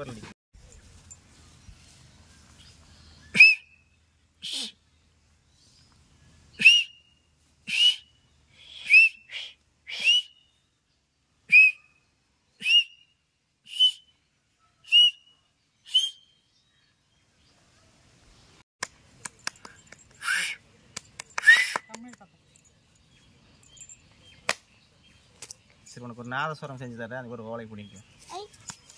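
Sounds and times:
man finger whistling: 0:03.3 - 0:03.8, 0:04.4 - 0:04.8, 0:06.6 - 0:07.1, 0:07.7 - 0:10.5, 0:11.5 - 0:11.9, 0:12.6 - 0:13.1, 0:13.7 - 0:14.1, 0:14.8 - 0:15.3, 0:15.9 - 0:16.4, 0:20.2 - 0:20.6, 0:21.2 - 0:22.1
light clicks and rattles: 0:18.8 - 0:20.2, 0:27.9 - 0:28.9.

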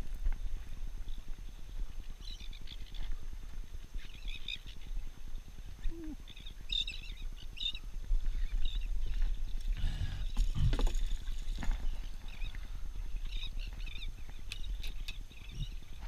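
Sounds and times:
seabirds chirping: 0:10.0 - 0:16.0.

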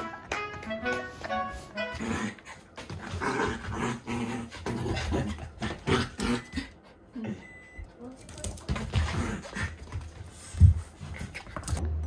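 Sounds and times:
paws scuffling on foam mats: 0:00.0 - 0:06.0, 0:08.0 - 0:11.8
puppy huffing and growling: 0:01.9 - 0:07.5.

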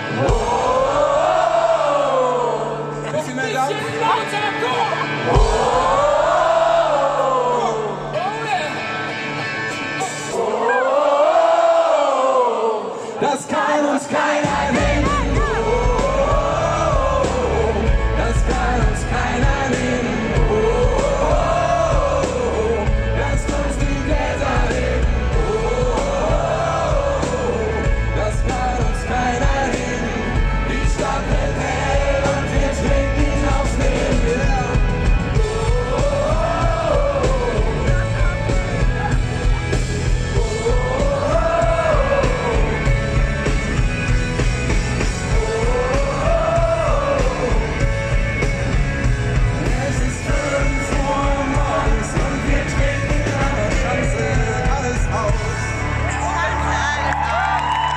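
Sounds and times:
live pop-rock band: 0:00.0 - 0:57.9
person singing: 0:12.7 - 0:38.5, 0:40.3 - 0:43.0, 0:45.2 - 0:48.1.

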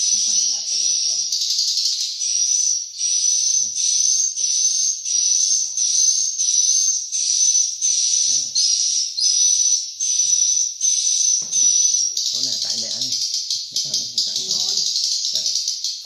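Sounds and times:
bird call through speakers: 0:07.2 - 0:15.9.

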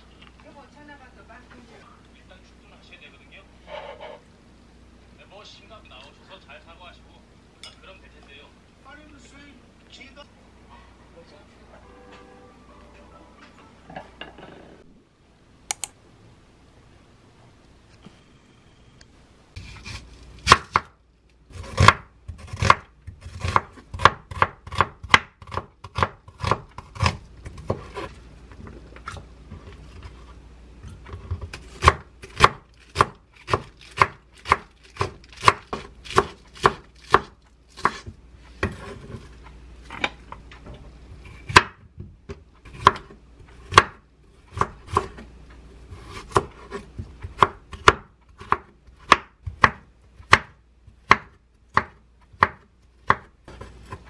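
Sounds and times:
knife chopping on wooden board: 0:19.6 - 0:20.9, 0:21.5 - 0:28.1, 0:31.2 - 0:39.0, 0:42.7 - 0:43.1, 0:43.7 - 0:45.2, 0:46.0 - 0:54.0.

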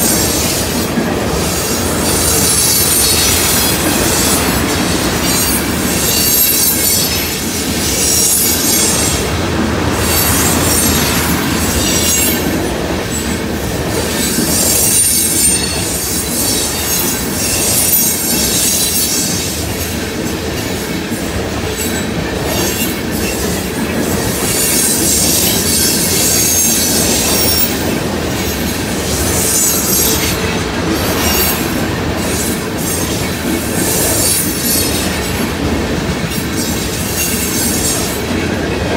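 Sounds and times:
train wheels rumbling on rails: 0:00.0 - 0:38.9.

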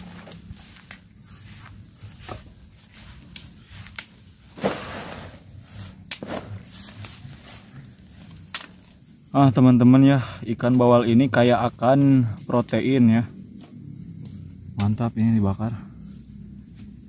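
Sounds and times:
footsteps through long grass: 0:00.0 - 0:09.4
leaf rustling: 0:00.0 - 0:09.9
sticks being handled: 0:00.0 - 0:15.4.

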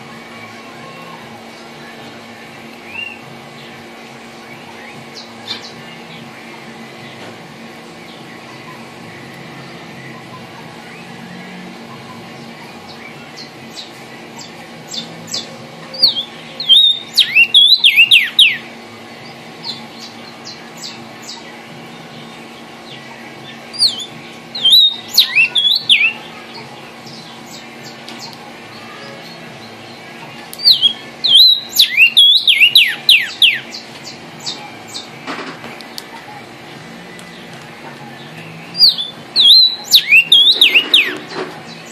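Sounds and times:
bird singing whistled song: 0:02.9 - 0:03.2, 0:12.8 - 0:18.7, 0:22.9 - 0:26.2, 0:30.6 - 0:35.1, 0:37.1 - 0:41.9.

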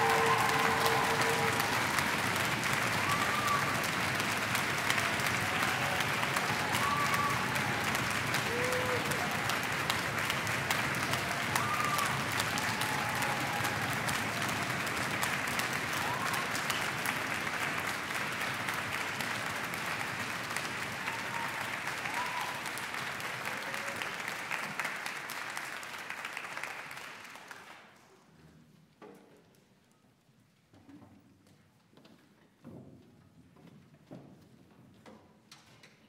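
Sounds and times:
audience applause: 0:00.0 - 0:28.0.

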